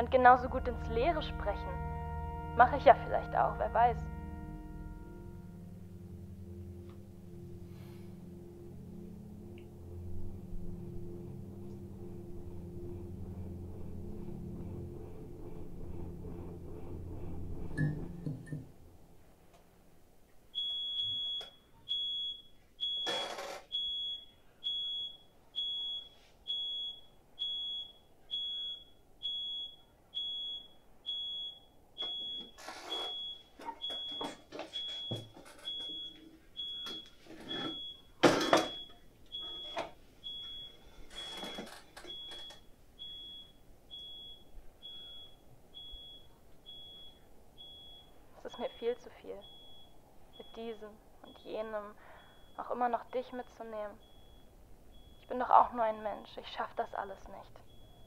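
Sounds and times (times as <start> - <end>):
high electronic beep: 20.6 - 48.7, 49.4 - 51.6, 53.2 - 55.4.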